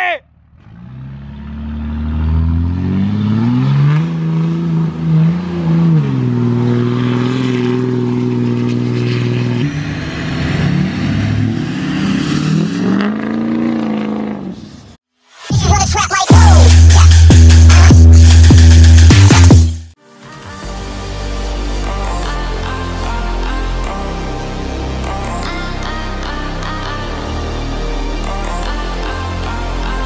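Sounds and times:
diesel pickup engine accelerating: 0:00.3 - 0:15.0.

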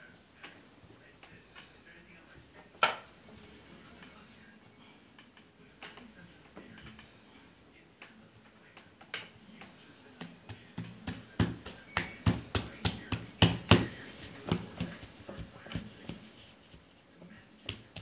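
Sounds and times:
hands kneading dough: 0:08.0 - 0:18.0.

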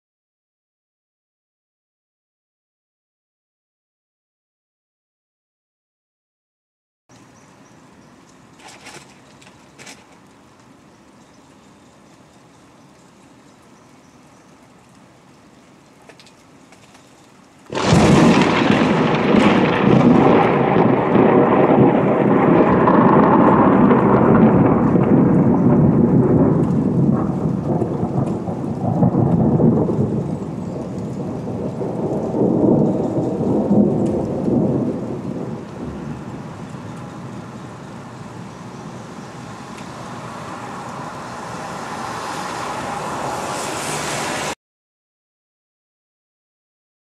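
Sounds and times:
faint rain hiss: 0:07.1 - 0:44.6
thunder crack and rolling rumble: 0:17.7 - 0:41.5.

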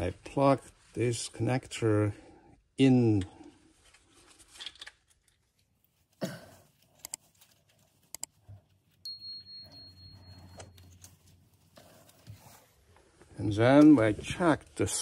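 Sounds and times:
connectors clicking on: 0:08.1 - 0:08.3.

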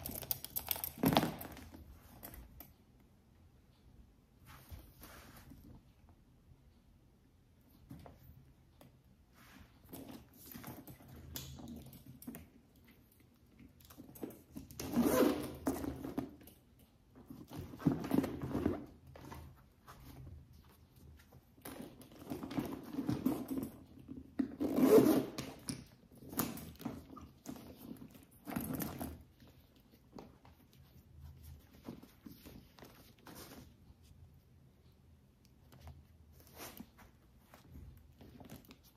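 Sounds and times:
zipper opening and closing: 0:14.8 - 0:16.2, 0:24.5 - 0:25.6.

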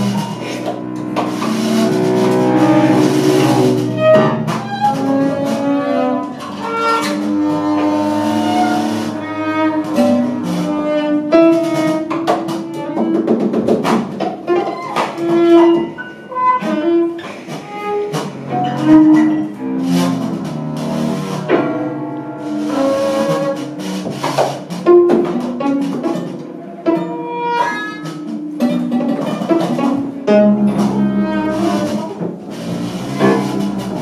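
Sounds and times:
bowed strings held tones: 0:00.0 - 0:13.4, 0:24.8 - 0:34.0.

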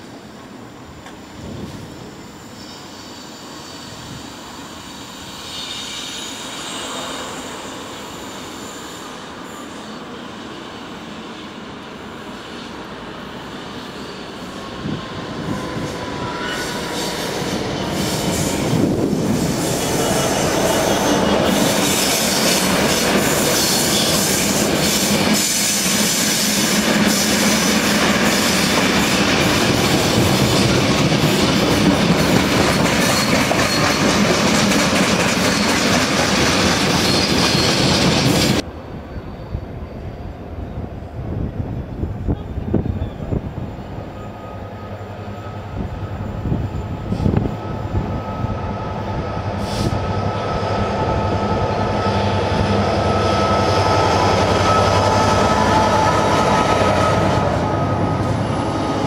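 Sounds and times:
diesel locomotive passing: 0:00.0 - 0:59.0
faint wheel squeal: 0:05.0 - 0:10.4
wagons clickety-clack over rail joints: 0:26.8 - 0:38.6.

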